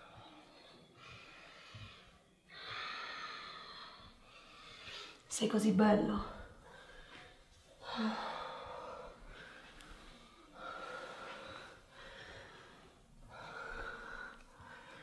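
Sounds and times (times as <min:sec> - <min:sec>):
person breathing heavily: 0:06.4 - 0:15.0.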